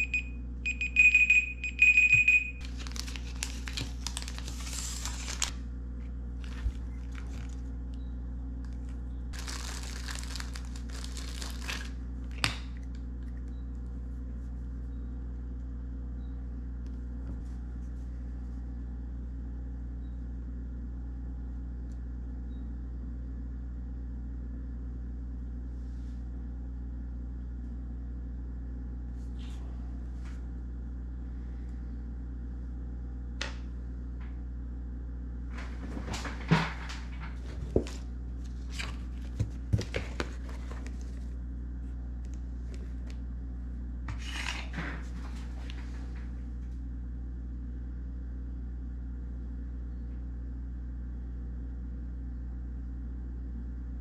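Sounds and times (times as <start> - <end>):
low electrical hum: 0.0 - 54.0
plastic packaging crinkling: 2.6 - 5.6, 6.4 - 7.7, 8.7 - 12.8.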